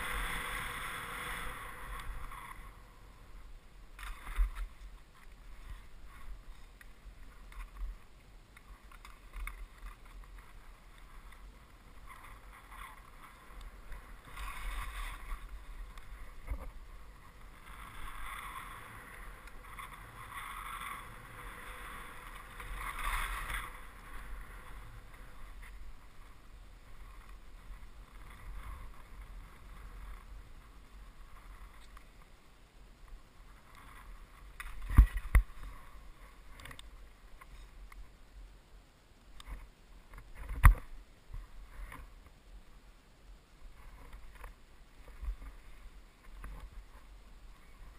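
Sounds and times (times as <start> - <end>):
skis swishing through snow: 0.0 - 32.4
low wind rumble: 0.0 - 47.9.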